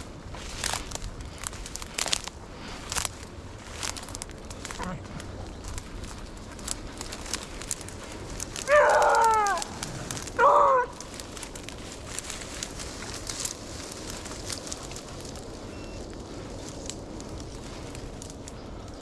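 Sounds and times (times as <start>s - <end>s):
dry brush crackling: 0.0s - 19.0s
hound baying: 8.5s - 11.1s.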